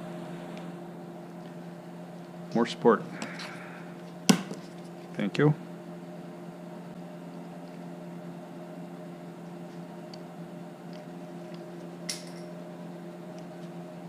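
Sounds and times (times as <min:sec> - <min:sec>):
steady low hum: 0:00.0 - 0:14.0
wood strip dropping on floor: 0:12.1 - 0:12.5.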